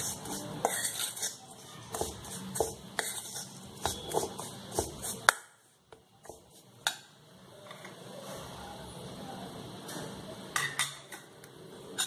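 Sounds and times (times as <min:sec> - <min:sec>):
metal spatula scraping steel bowl: 0:00.0 - 0:05.3.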